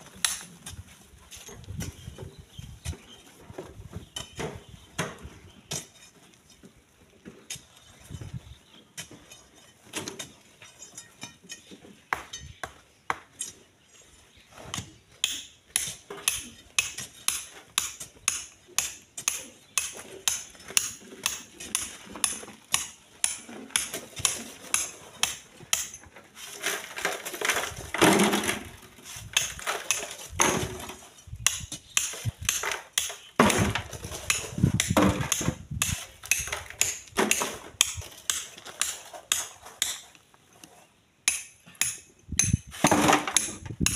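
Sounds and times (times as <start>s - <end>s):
metallic clinks and scrapes: 9.2s - 11.8s
gritty scraping of gravel: 19.4s - 41.0s.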